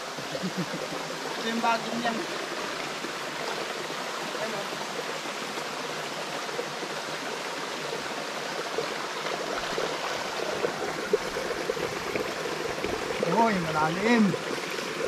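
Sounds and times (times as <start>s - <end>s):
stream running over rocks: 0.0s - 15.0s.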